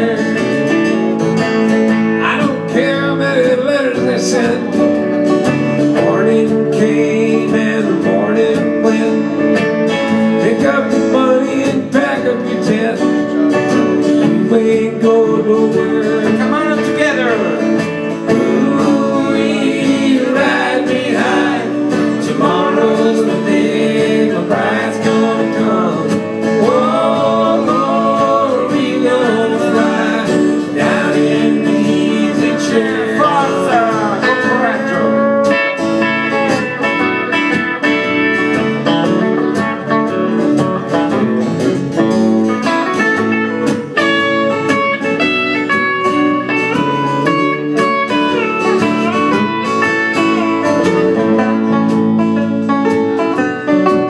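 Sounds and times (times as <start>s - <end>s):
acoustic guitar: 0.0s - 54.0s
banjo: 0.0s - 54.0s
electric guitar: 0.0s - 54.0s.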